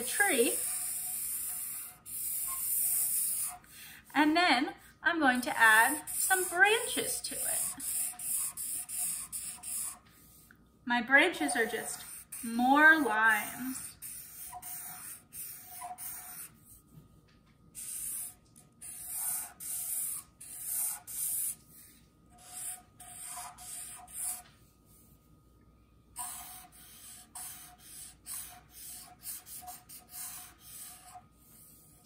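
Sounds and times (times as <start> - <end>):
marker scratching on paper: 0.0 - 3.8, 5.3 - 10.4, 11.4 - 16.8, 17.8 - 24.6, 26.2 - 32.0
marker squeak: 0.6 - 3.6, 13.5 - 16.5, 17.8 - 21.6, 22.4 - 24.4, 26.2 - 31.2.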